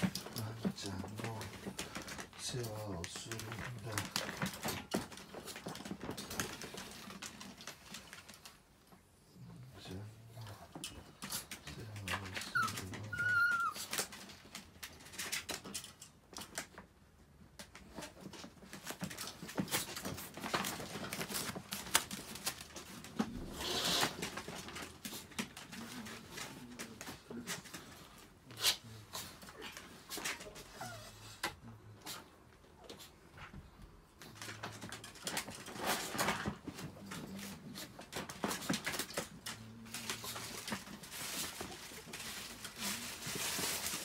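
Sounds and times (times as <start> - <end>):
dog whining: 12.3 - 14.0, 30.6 - 31.4.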